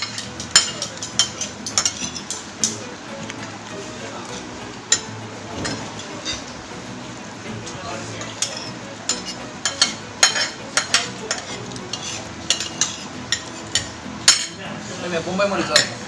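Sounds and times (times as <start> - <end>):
fork scraping and clinking on plate: 0.0 - 2.8, 4.4 - 6.5, 8.1 - 14.6.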